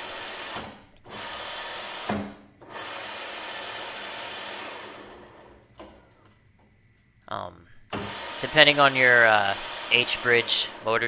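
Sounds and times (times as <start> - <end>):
electric motors whirring: 0.0 - 5.6, 7.9 - 11.0.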